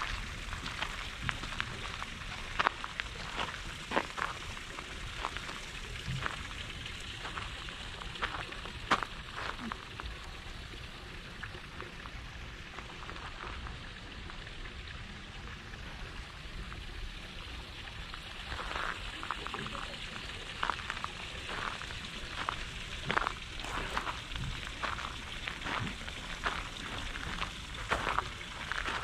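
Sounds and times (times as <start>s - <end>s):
steady outdoor hiss: 0.0s - 29.0s.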